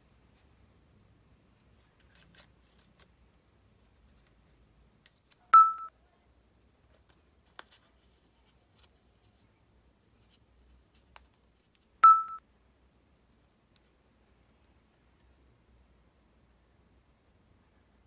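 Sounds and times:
short bright dings: 0:05.6 - 0:05.9, 0:12.0 - 0:12.4.

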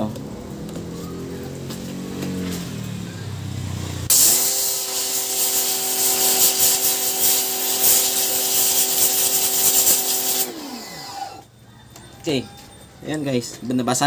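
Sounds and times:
water jet hissing: 0:04.1 - 0:11.2
pressure washer motor hum: 0:04.1 - 0:11.5.

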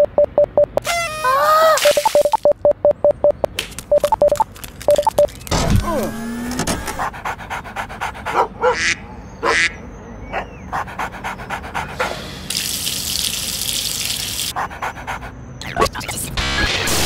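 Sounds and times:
dog sniffing: 0:06.8 - 0:08.7, 0:10.7 - 0:12.4
dog urinating: 0:12.4 - 0:14.5.

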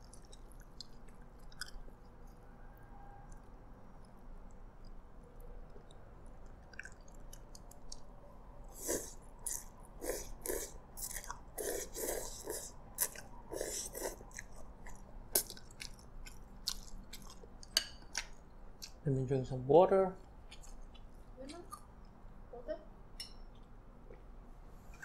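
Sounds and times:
person slurping noodles: 0:08.7 - 0:12.8.

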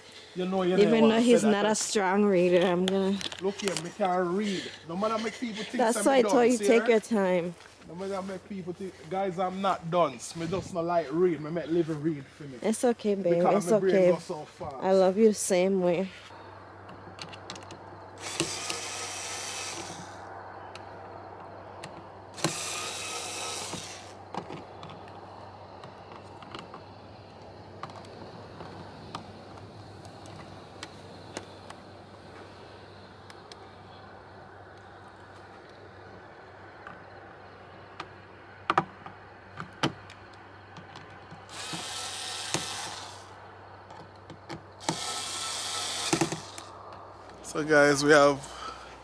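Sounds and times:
cordless drill driving a screw: 0:18.2 - 0:20.1, 0:22.4 - 0:24.2, 0:41.5 - 0:43.3, 0:44.8 - 0:46.7
power tool bursts: 0:18.2 - 0:20.2, 0:22.4 - 0:24.2, 0:41.5 - 0:43.3, 0:44.8 - 0:46.7
clicks and knocks of handling: 0:25.8 - 0:31.8, 0:37.9 - 0:41.8, 0:43.9 - 0:45.0.

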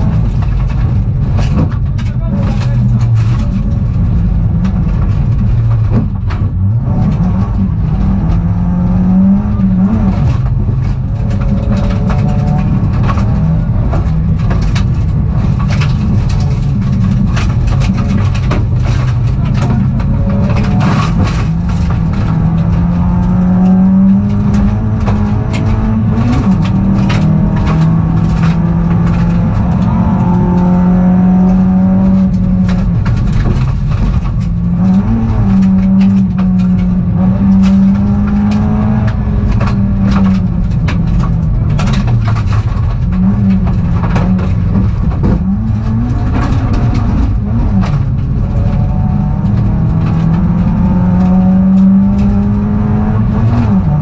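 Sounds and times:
car knocks and ticks: 0:00.0 - 0:54.0
rally car engine revving: 0:00.0 - 0:54.0.

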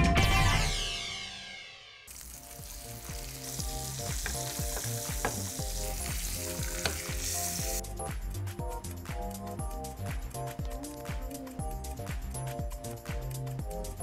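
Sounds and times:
fish sizzling in a pan: 0:02.1 - 0:07.8
background music with a beat: 0:02.4 - 0:14.0.

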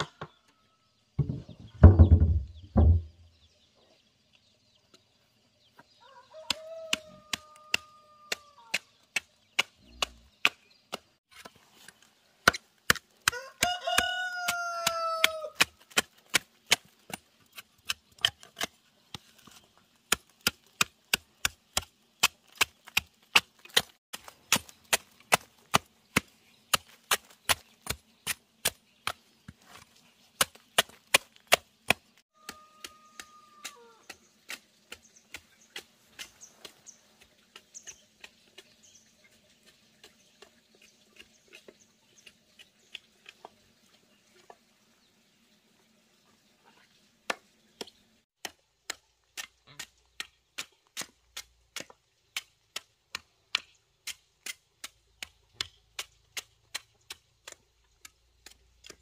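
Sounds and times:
rooster crowing: 0:06.0 - 0:08.7, 0:13.3 - 0:15.6, 0:32.3 - 0:34.0
machete chopping wood: 0:12.4 - 0:17.2, 0:20.1 - 0:29.2.

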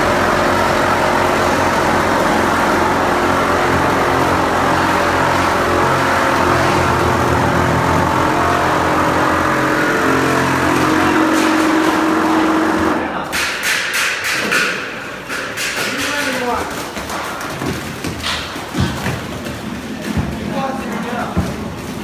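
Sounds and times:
plastering machine motors running: 0:00.0 - 0:13.2.

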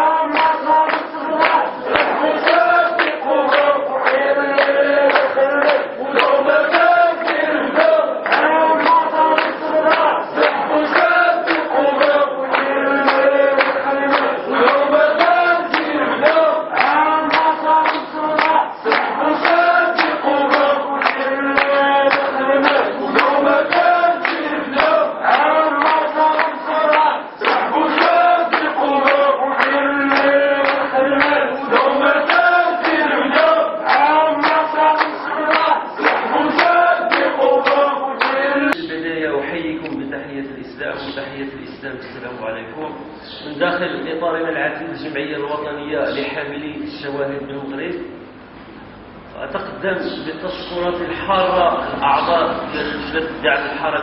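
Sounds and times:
rhythmic hand claps: 0:00.0 - 0:39.2
men chanting in unison: 0:00.0 - 0:42.6, 0:49.6 - 0:54.0
voice through megaphone: 0:00.0 - 0:44.1.

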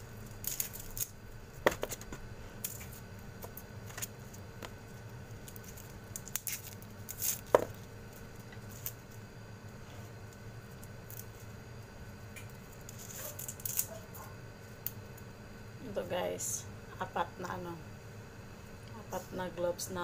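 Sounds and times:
garlic skin crackling: 0:00.0 - 0:09.2, 0:12.4 - 0:15.2
garlic cloves snapping: 0:00.3 - 0:04.8, 0:05.4 - 0:07.8, 0:12.4 - 0:14.0.

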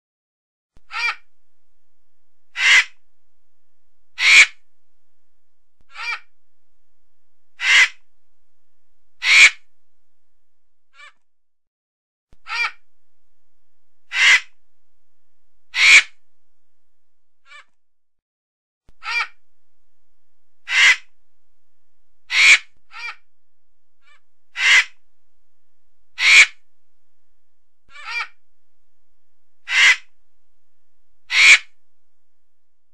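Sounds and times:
vulture squawking: 0:00.9 - 0:01.2, 0:02.6 - 0:03.0, 0:04.2 - 0:04.6, 0:05.9 - 0:06.3, 0:07.6 - 0:08.0, 0:09.2 - 0:09.6, 0:14.1 - 0:14.5, 0:15.7 - 0:16.1, 0:19.0 - 0:19.4, 0:20.7 - 0:21.1, 0:22.3 - 0:23.2, 0:24.0 - 0:25.0, 0:26.2 - 0:26.6, 0:27.9 - 0:28.4, 0:29.7 - 0:30.1, 0:31.3 - 0:31.7
hoarse bird caws: 0:00.9 - 0:01.3, 0:02.5 - 0:03.0, 0:04.2 - 0:04.6, 0:05.9 - 0:06.3, 0:07.6 - 0:08.0, 0:09.2 - 0:09.7, 0:10.9 - 0:11.2, 0:12.4 - 0:12.8, 0:14.1 - 0:14.6, 0:15.7 - 0:16.2, 0:17.4 - 0:17.8, 0:19.0 - 0:19.4, 0:20.6 - 0:21.1, 0:22.3 - 0:23.3, 0:24.0 - 0:25.0, 0:26.2 - 0:26.6, 0:27.9 - 0:28.4, 0:29.6 - 0:30.2, 0:31.3 - 0:31.8.

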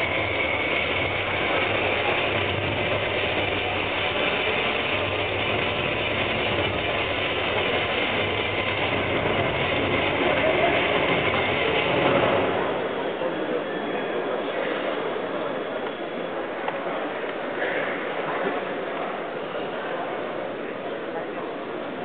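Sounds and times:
crowd hubbub in sports hall: 0:00.0 - 0:22.0.

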